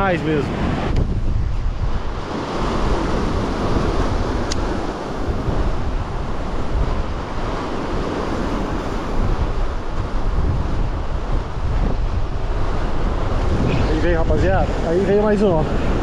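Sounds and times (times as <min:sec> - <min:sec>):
wind buffeting microphone: 0:00.0 - 0:16.0
sharp click: 0:04.4 - 0:04.7.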